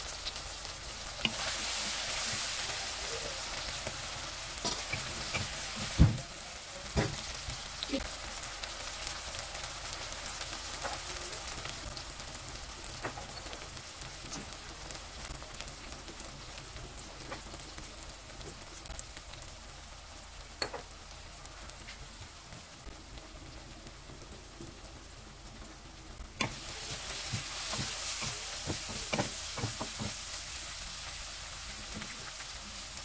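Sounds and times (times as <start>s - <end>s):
vegetables sizzling in oil: 0.0s - 33.0s
spatula stirring: 26.4s - 30.3s.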